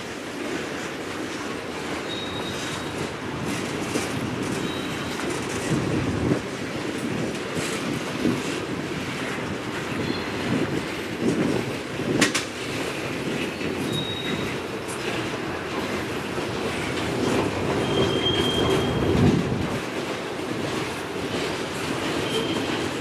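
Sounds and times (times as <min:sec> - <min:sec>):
wheel-on-rail rumble: 0:00.0 - 0:23.0
high-pitched wheel squeals: 0:02.1 - 0:03.0, 0:13.6 - 0:14.6, 0:17.8 - 0:19.2, 0:22.2 - 0:22.8.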